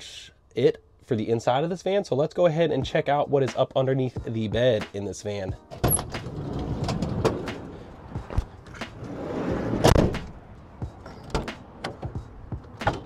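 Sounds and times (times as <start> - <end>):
heavy van door shutting: 5.6 - 10.4, 11.0 - 13.0.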